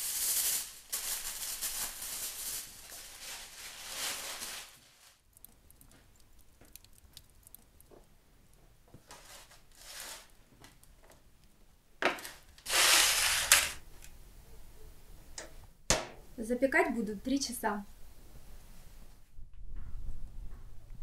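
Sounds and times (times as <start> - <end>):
foil crinkling: 0.0 - 5.4.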